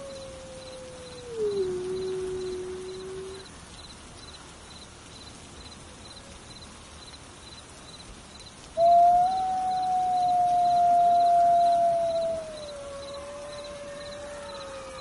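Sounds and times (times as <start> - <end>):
wolf howling: 0.0 - 3.4, 8.8 - 15.0.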